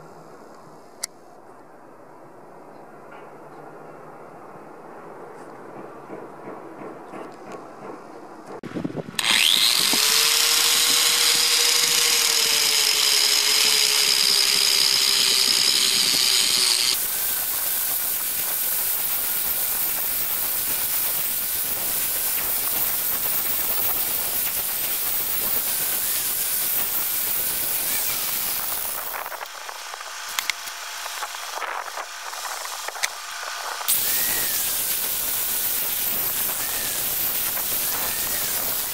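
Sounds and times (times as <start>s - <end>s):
angle grinder whine: 9.1s - 38.9s
wire brush grinding on metal: 9.2s - 38.9s.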